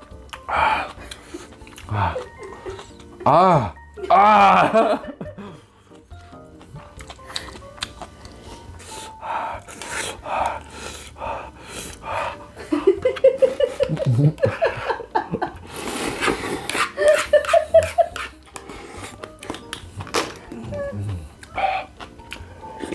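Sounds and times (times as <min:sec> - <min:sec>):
gasping breaths: 0:00.4 - 0:03.0, 0:08.6 - 0:12.6, 0:20.4 - 0:22.9
man slurping noodles: 0:15.7 - 0:17.0.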